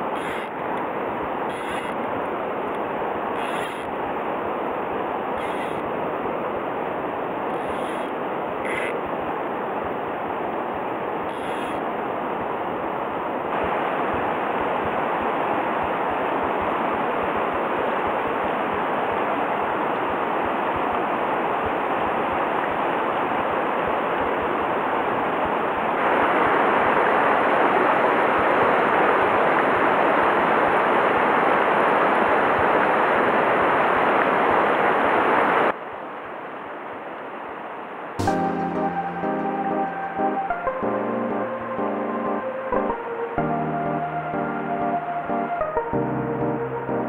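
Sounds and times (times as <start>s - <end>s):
river rushing over rocks: 0.0s - 35.8s.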